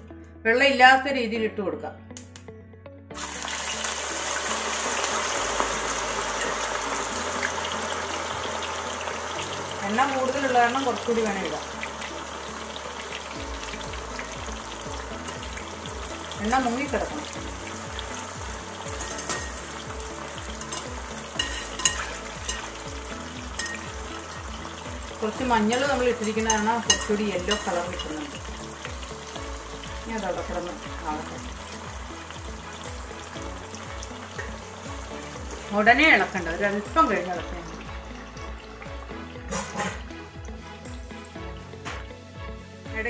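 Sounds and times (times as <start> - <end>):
banana slices sizzling in oil: 3.2 - 43.0
skimmer clinking against metal pot: 18.9 - 19.7, 20.5 - 22.8, 23.5 - 24.1, 25.6 - 28.5.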